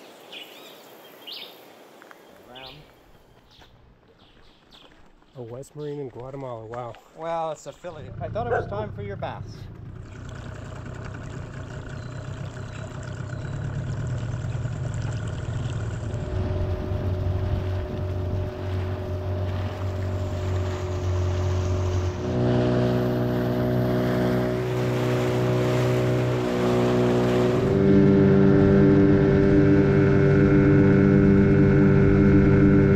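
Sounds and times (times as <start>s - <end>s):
water along hull: 0.0s - 32.9s
outboard motor running: 7.4s - 32.9s.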